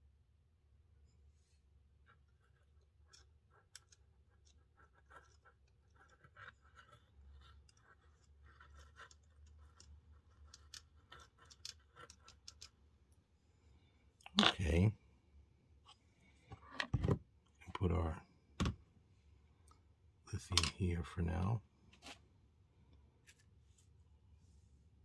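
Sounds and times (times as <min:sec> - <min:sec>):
fingers scratching small plastic parts: 0:02.0 - 0:12.8.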